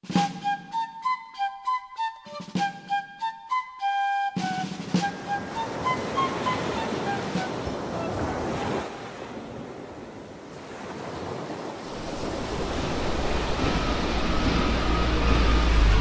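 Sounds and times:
wind: 0.0s - 16.0s
waves washing: 4.4s - 16.0s
deep rumble: 12.0s - 16.0s.

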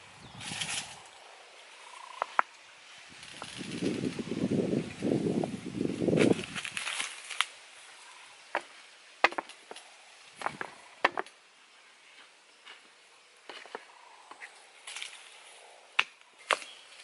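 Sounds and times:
sticks and stones knocking: 8.5s - 9.8s, 10.4s - 11.4s.

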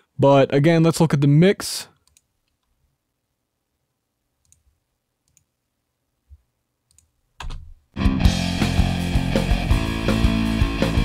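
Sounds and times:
mouse clicks: 2.0s - 2.7s, 4.4s - 5.5s, 6.9s - 7.6s
rock band music: 8.0s - 11.0s.

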